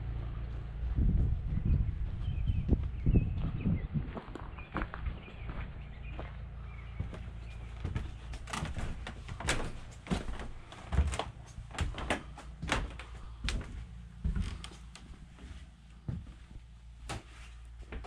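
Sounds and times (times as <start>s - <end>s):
footsteps on wooden boards: 0.5s - 18.0s.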